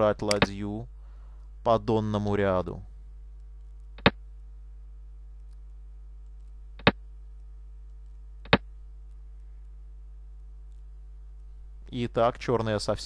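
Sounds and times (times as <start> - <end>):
steady low hum: 0.0 - 13.0
sharp computer clicks: 0.2 - 0.6, 4.0 - 4.2, 6.2 - 7.0, 8.4 - 8.7.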